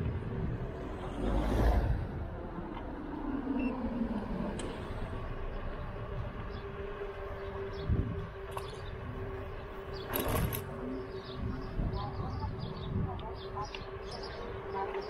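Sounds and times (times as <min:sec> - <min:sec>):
wind on microphone: 0:07.7 - 0:09.3, 0:10.2 - 0:14.0.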